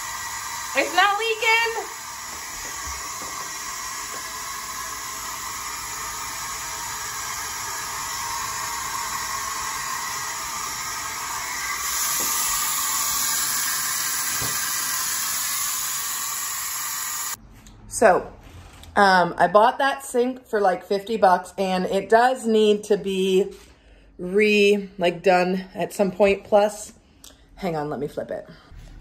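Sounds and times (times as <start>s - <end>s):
faucet water running into sink: 0.0s - 17.4s.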